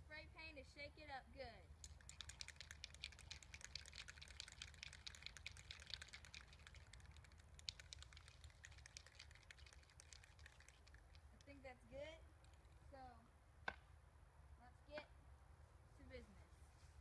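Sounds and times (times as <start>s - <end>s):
spray cans rattling when shaken: 1.7s - 11.7s.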